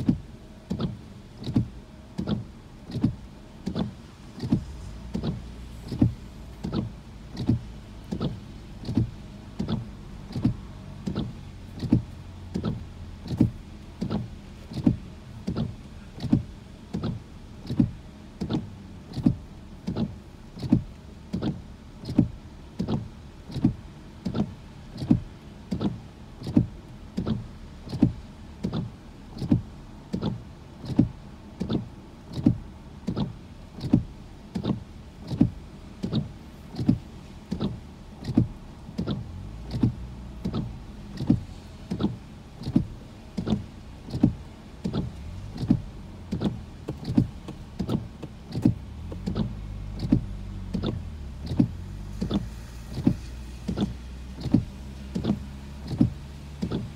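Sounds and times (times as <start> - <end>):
windshield wipers swishing: 0.0 - 56.9.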